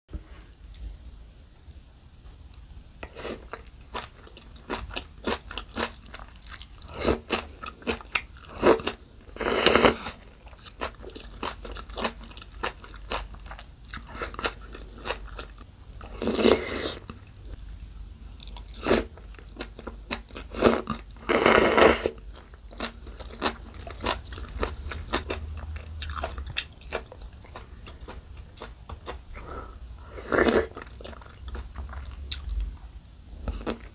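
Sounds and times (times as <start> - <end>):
crisp crunching and chewing: 2.5 - 9.0, 9.7 - 16.4, 22.3 - 29.5
slurping noodles: 16.2 - 17.0, 20.5 - 22.2.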